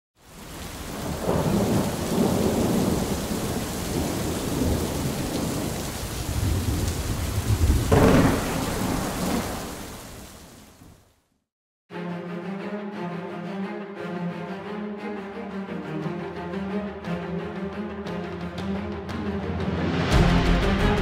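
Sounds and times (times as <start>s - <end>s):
steady rain hiss: 0.2s - 11.0s
thunder rumbling: 0.6s - 10.9s
sharp thunderclap: 0.9s - 10.2s.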